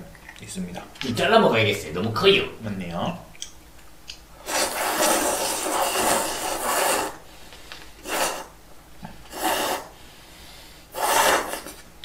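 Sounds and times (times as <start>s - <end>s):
person slurping noodles: 4.4s - 7.2s, 8.0s - 8.6s, 9.3s - 10.0s, 10.9s - 11.8s.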